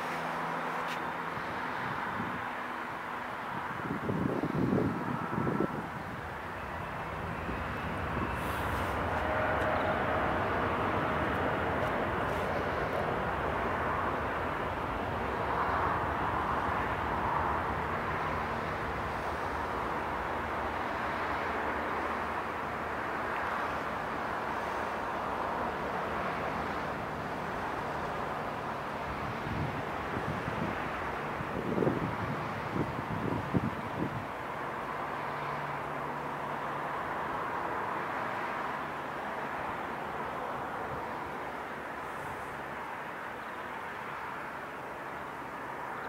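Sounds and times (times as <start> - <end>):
jet engine rumble: 0.0 - 34.2.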